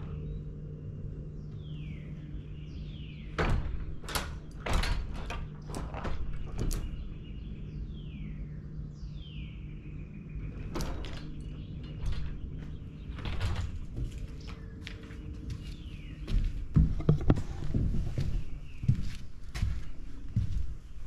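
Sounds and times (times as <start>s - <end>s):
steady low hum: 0.0s - 21.0s
folding glass door knocks and clicks: 3.2s - 7.3s, 10.5s - 14.6s.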